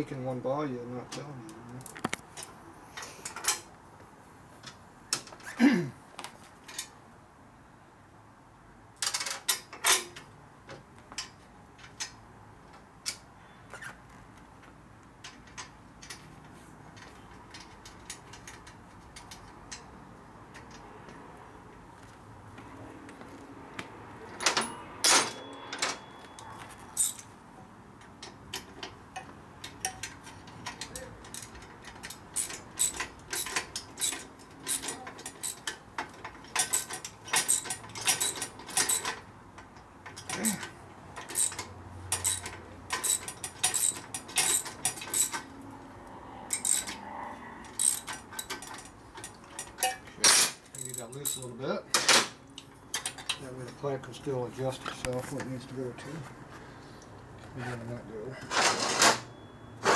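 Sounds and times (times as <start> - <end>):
short squeak: 13.4 - 14.0
metallic clicks of hand tools: 28.0 - 45.5, 46.5 - 47.0, 47.6 - 53.4.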